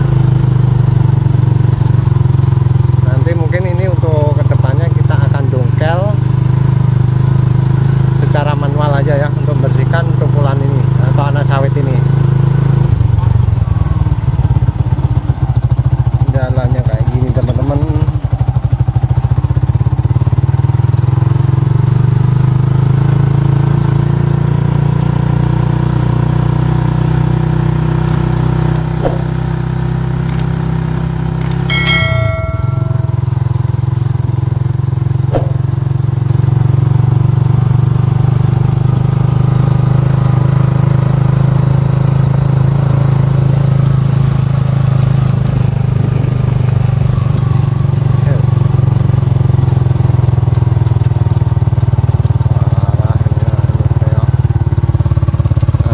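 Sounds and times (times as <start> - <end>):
motorcycle engine running: 0.0 - 55.9
electronic chime: 31.5 - 33.7.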